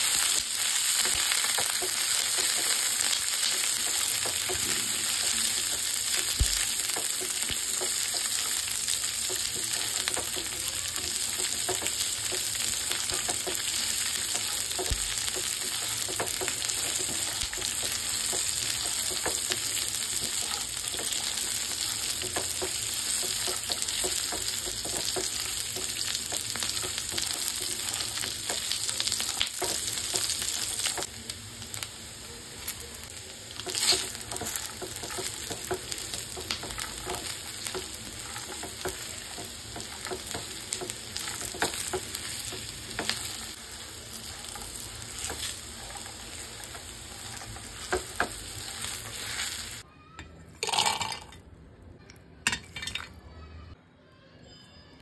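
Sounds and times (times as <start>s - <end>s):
food sizzling in hot oil: 0.0s - 49.9s
spatula scraping a pan: 33.6s - 49.8s.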